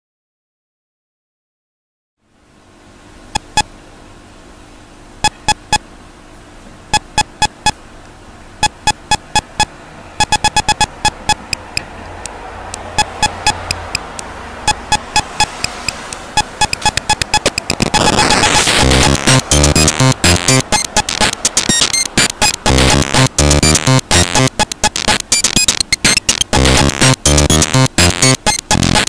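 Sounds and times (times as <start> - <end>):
chiptune bleeping music: 5.2 - 5.8, 7.0 - 7.8, 8.6 - 11.8, 12.8 - 14.1, 14.7 - 29.0.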